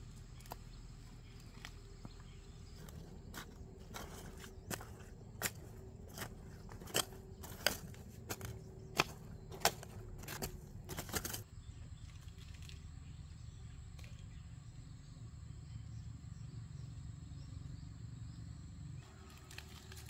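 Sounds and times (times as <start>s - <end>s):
hoe chopping into soil: 2.7s - 11.4s.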